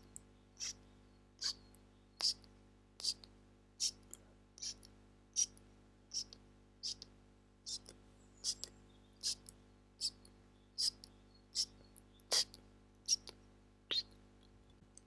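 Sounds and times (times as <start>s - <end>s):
mouth clicks: 2.2s - 4.0s, 7.7s - 14.2s.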